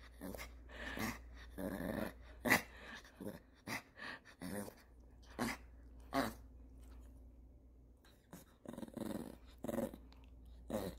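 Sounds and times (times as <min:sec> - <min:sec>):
dog grumbling vocalizations: 0:08.3 - 0:10.9.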